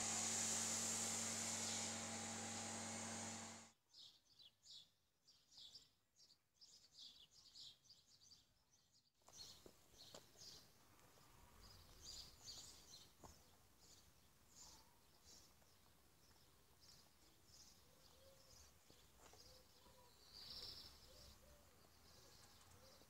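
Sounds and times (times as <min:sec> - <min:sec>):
motor hum with hiss: 0:00.0 - 0:03.7.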